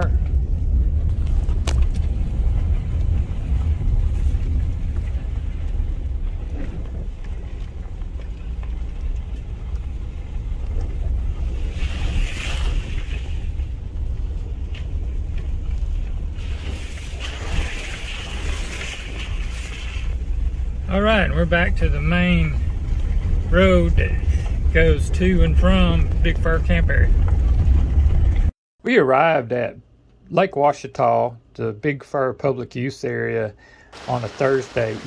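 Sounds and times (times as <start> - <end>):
engine and tyres rumbling: 0.0 - 28.6.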